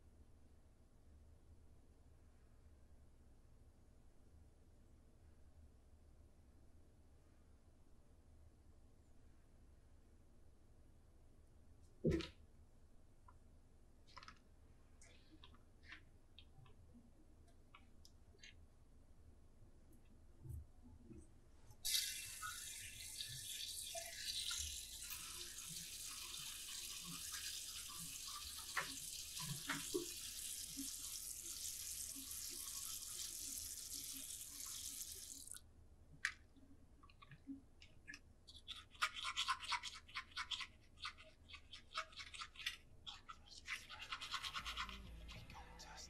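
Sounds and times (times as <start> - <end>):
toothbrush scrubbing teeth: 24.6 - 35.6, 38.5 - 46.0.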